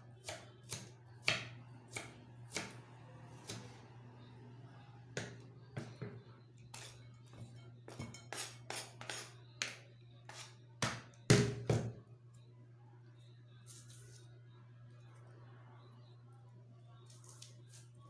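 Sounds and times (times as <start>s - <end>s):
knife chopping on wooden board: 0.2s - 2.8s.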